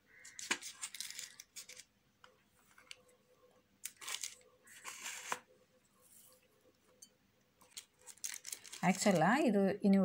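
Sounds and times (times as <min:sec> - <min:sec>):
paper crinkling: 0:00.3 - 0:01.9, 0:03.8 - 0:05.5, 0:07.6 - 0:09.4.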